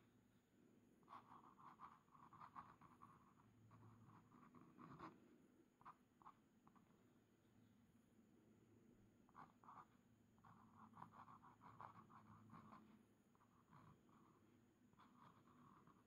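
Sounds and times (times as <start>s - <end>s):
pen nib scratching on paper: 1.0s - 5.2s, 9.3s - 16.0s.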